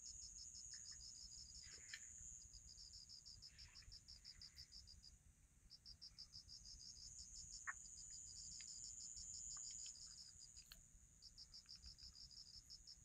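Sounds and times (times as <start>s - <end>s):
crickets trilling: 0.0s - 13.0s
insect rapid pulsing chirp: 0.0s - 13.0s
faint click: 1.7s - 2.2s.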